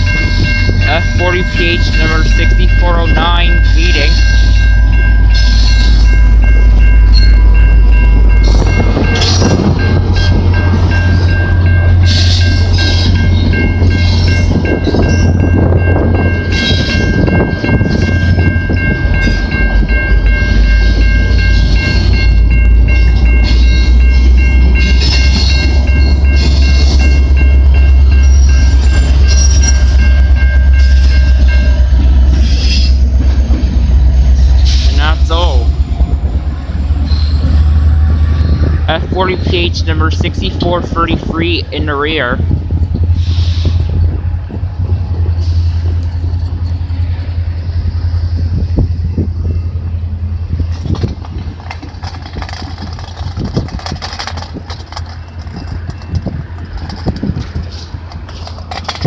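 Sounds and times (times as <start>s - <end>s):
level crossing warning bell: 0.0s - 38.2s, 38.8s - 43.0s, 43.8s - 59.0s
diesel locomotive rumble: 0.0s - 59.0s
train coaches clattering over rails: 0.0s - 59.0s.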